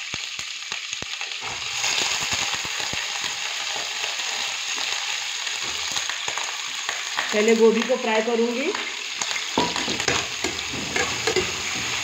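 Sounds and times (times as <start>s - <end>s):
vegetables sizzling in hot oil: 0.0s - 12.0s.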